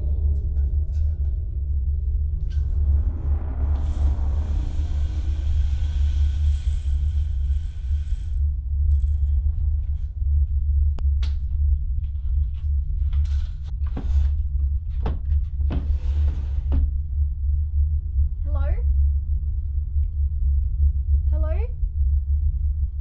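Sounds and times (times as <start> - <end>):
deep rumbling drone: 0.0 - 23.0
hiss: 3.6 - 8.4.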